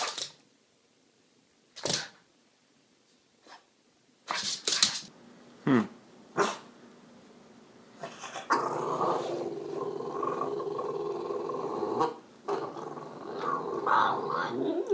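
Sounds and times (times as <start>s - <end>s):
dog growling and grumbling: 8.0s - 14.9s.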